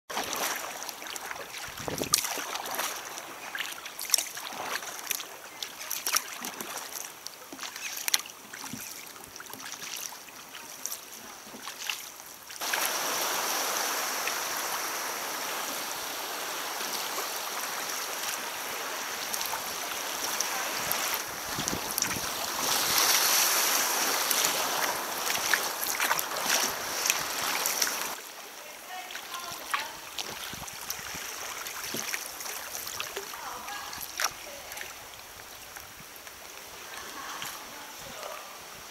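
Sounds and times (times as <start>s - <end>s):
small paddle splashes: 0.1s - 14.7s, 16.8s - 28.3s, 28.9s - 36.7s
water lapping against kayak hull: 0.1s - 38.9s
rushing hiss of water: 9.0s - 38.9s.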